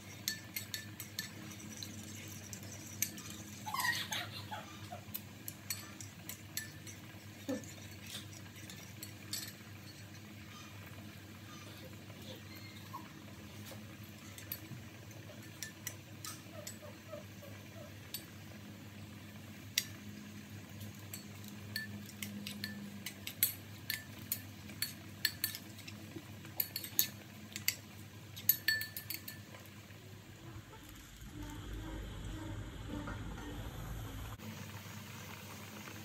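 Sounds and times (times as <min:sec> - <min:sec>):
metal spoon clinking against bowl: 0:00.0 - 0:03.7, 0:05.1 - 0:11.0, 0:13.6 - 0:18.4, 0:20.8 - 0:29.7.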